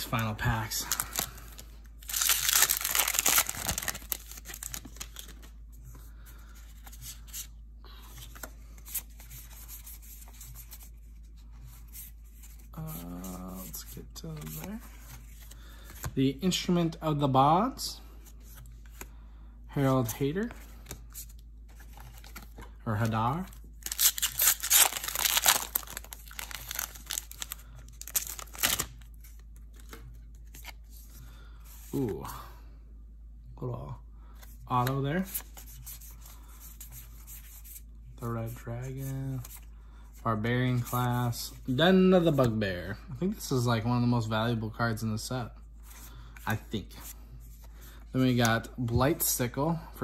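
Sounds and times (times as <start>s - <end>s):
foil wrapper crinkling: 0.9s - 5.4s, 23.8s - 29.0s.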